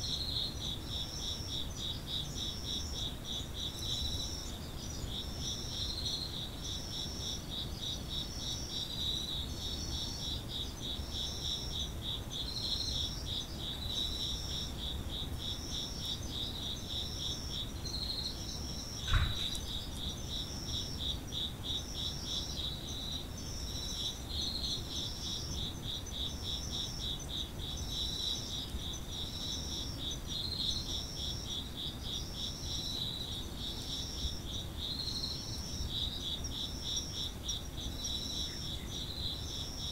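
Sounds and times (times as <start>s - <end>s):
insect rapid pulsing song: 0.0s - 39.9s
sharp knock: 19.0s - 19.6s.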